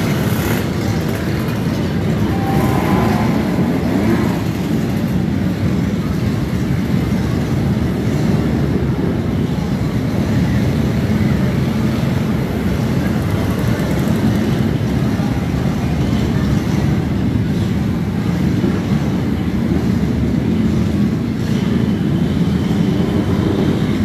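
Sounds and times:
motorcycle engines rumbling: 0.0 - 24.0.

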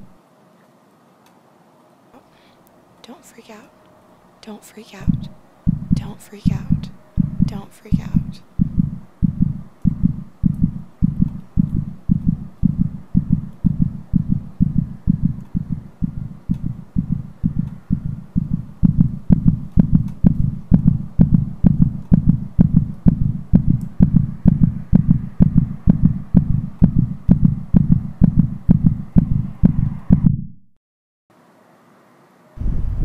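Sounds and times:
rapid heartbeat thumping: 5.0 - 30.6
wind noise: 8.1 - 30.4, 32.6 - 33.0.

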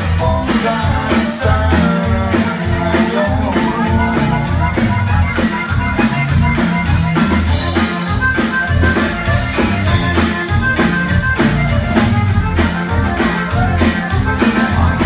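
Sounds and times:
accordion melody: 0.0 - 15.0
bajo sexto strumming: 0.0 - 15.0
drums: 0.0 - 15.0
electric bass: 0.0 - 15.0.

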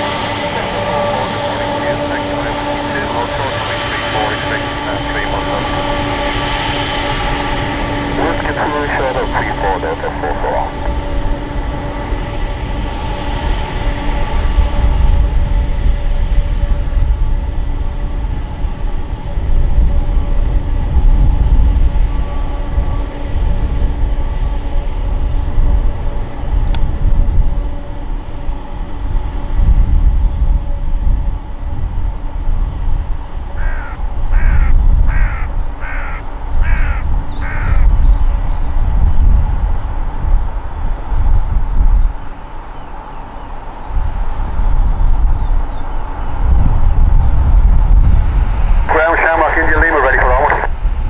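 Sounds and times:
jet engines whining and rumbling: 0.0 - 51.0
crow cawing: 33.5 - 38.0.

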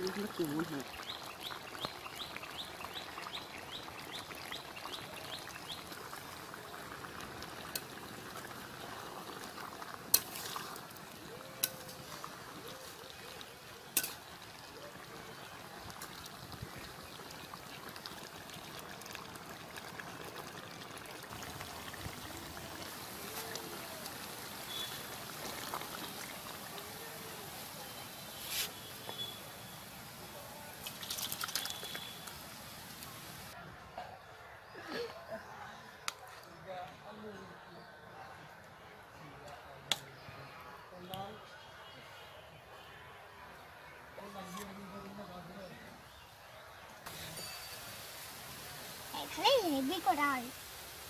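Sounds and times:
curry bubbling in a pot: 0.0 - 33.6.

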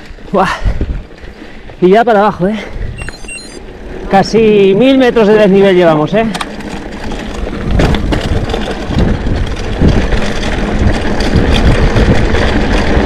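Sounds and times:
bike rattling: 0.0 - 13.0
wind on microphone: 0.6 - 1.1, 7.2 - 13.0.

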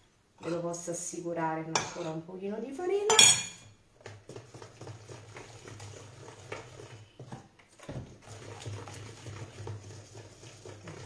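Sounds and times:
whisk tapping plastic bowl: 4.0 - 11.0.

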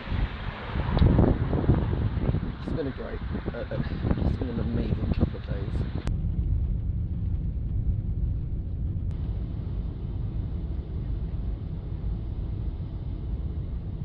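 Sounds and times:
jet airliner cabin rumble: 0.0 - 14.0.

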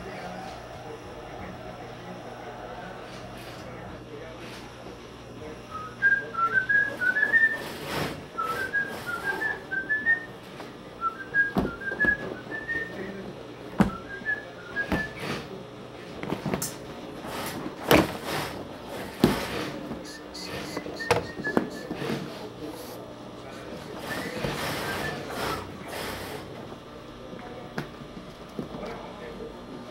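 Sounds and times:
person whistling a tune: 8.4 - 10.3, 20.1 - 21.9.

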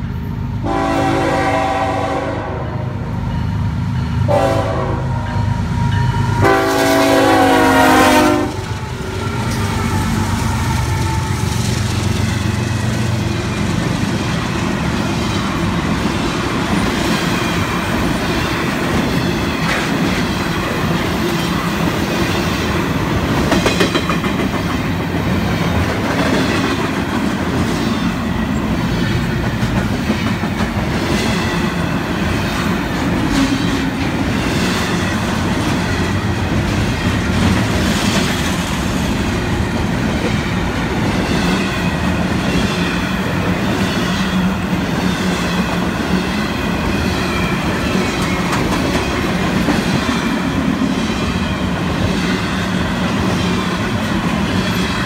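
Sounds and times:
freight train rumbling past: 0.0 - 55.0
wheels clacking over rail joints: 8.6 - 39.2.

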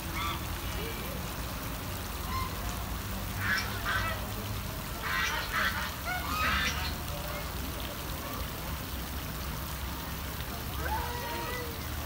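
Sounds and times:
water spray pattering on pond: 0.0 - 12.0
ducks and geese calling: 0.1 - 0.5, 3.4 - 4.2, 5.0 - 7.4.

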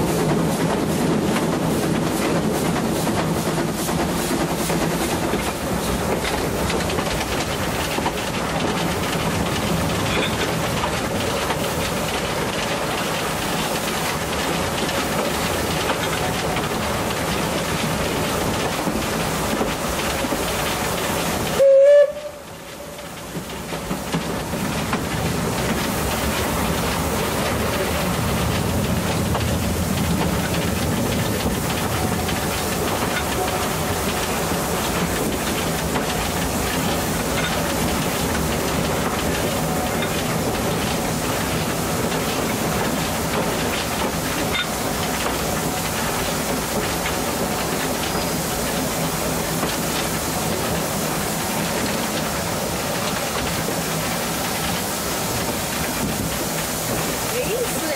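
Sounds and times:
steam train running: 0.0 - 57.9
train whistle blast: 21.6 - 22.9.

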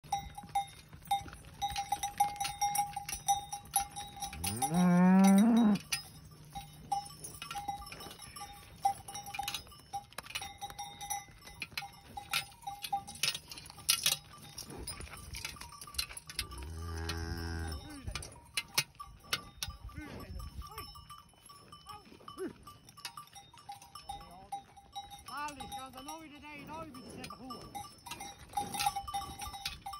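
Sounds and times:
cowbells clanking: 0.0 - 29.9
cow mooing: 4.4 - 5.9, 16.4 - 18.0.

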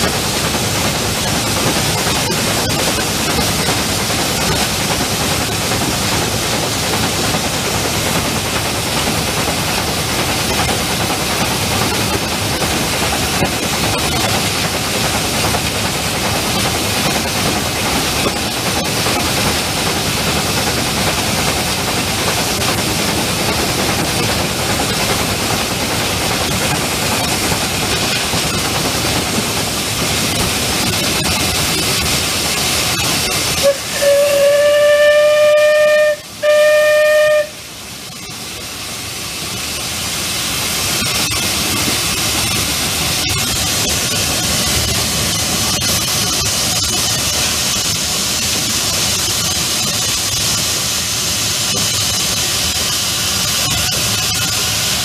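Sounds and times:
steam locomotive hissing: 0.0 - 55.0
steam whistle blasts: 33.6 - 37.7.

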